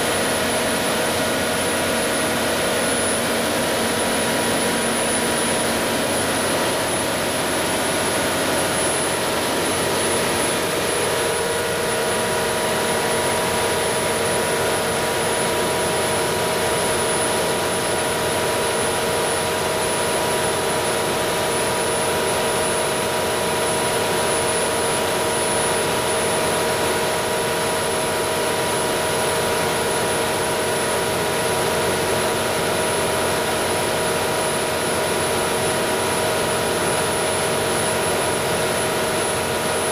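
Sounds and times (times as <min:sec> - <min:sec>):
thin high whine: 0:00.0 - 0:18.1
diesel generator engine drone: 0:00.0 - 0:39.9.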